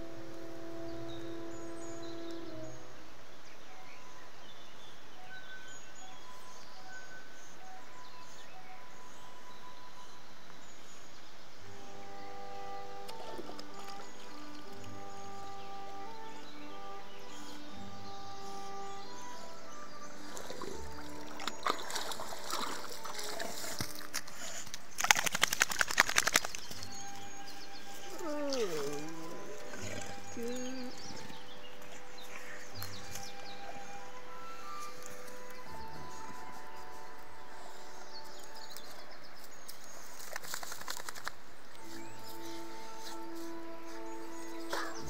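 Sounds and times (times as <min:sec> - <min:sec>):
flowing river water: 0:00.0 - 0:45.0
dog splashing in water: 0:20.2 - 0:24.3, 0:25.0 - 0:26.9.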